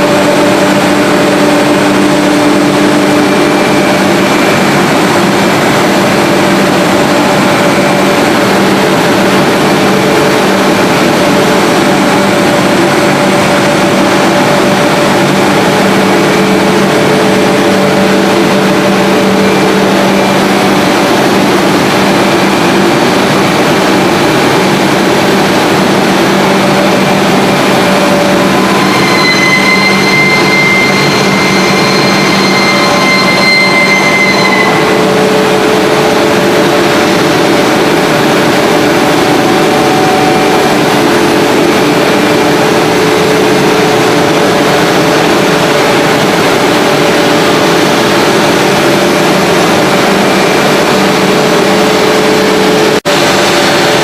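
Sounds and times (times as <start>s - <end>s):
loud machine drone: 0.0s - 54.0s
high whistling tone: 28.4s - 35.7s.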